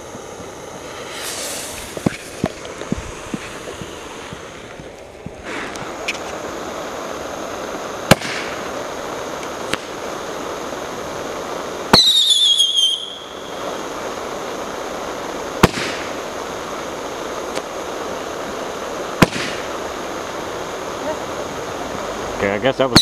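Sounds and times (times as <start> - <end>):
steady hiss: 0.0 - 23.0
falling whistle with crackling: 11.9 - 13.6.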